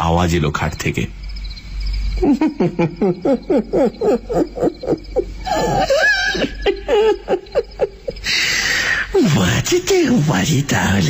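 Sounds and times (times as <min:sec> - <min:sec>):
man laughing: 0:02.2 - 0:08.4.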